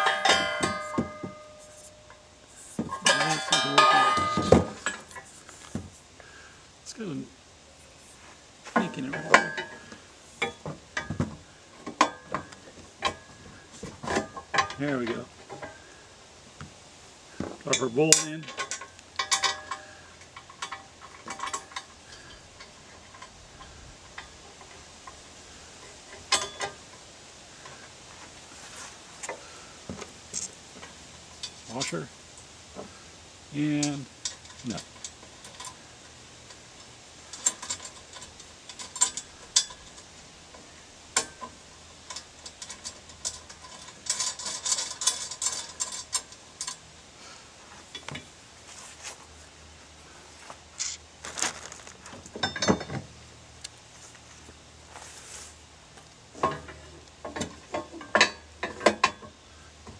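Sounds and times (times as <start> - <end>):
sharp metal clank: 0.0 - 5.2
small metal clinks: 0.0 - 5.4, 17.7 - 25.2, 25.8 - 27.0, 33.7 - 47.0, 51.4 - 53.0
steel tines clanking on rake bar: 0.0 - 5.8, 8.7 - 15.9, 17.4 - 27.9, 36.5 - 47.0, 52.1 - 53.1, 56.3 - 59.4.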